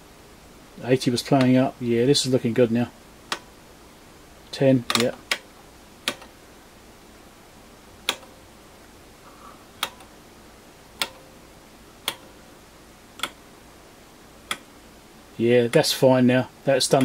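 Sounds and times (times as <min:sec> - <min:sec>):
rotary switch clicks: 0:03.3 - 0:03.5, 0:04.8 - 0:06.4, 0:08.0 - 0:08.5, 0:09.8 - 0:10.2, 0:11.0 - 0:11.4, 0:12.0 - 0:12.4, 0:13.2 - 0:13.4, 0:14.4 - 0:14.7.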